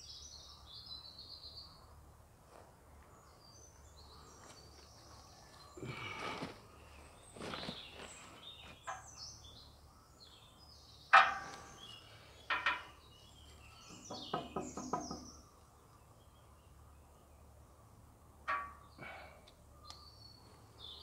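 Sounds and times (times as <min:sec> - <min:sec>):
small birds chirping: 0:02.8 - 0:21.0.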